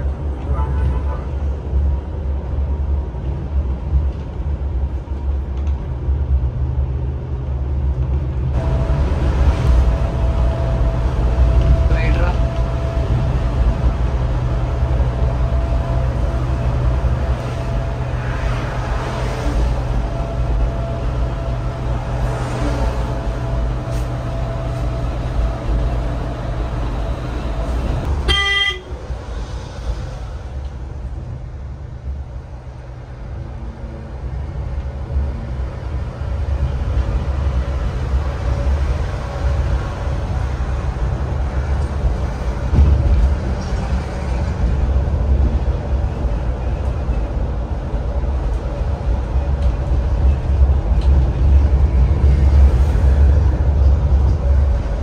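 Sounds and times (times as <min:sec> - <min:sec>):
bus engine and road rumble: 0:00.0 - 0:55.0
bus horn honk: 0:00.4 - 0:01.4, 0:28.2 - 0:29.0.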